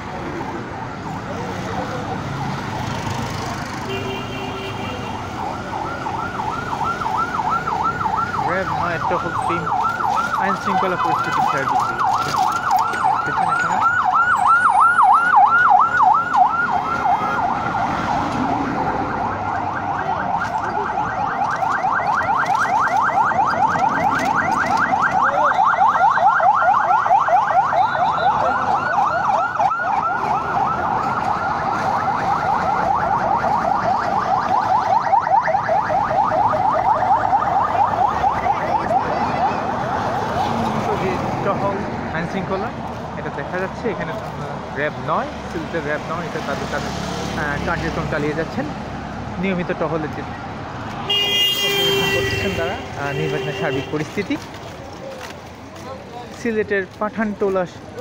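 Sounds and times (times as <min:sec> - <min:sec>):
police siren yelping: 0:00.0 - 0:03.9, 0:04.8 - 0:41.4.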